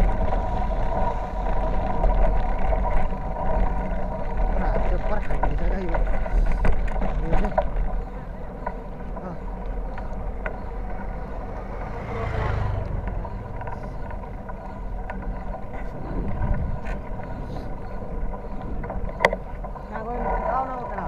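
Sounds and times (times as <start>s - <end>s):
bicycle road rumble: 0.0s - 21.0s
wind noise: 0.0s - 21.0s.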